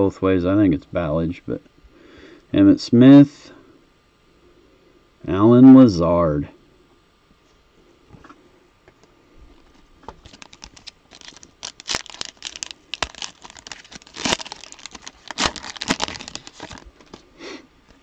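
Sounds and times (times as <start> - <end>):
plastic wrapper crinkling and tearing: 10.1 - 17.3.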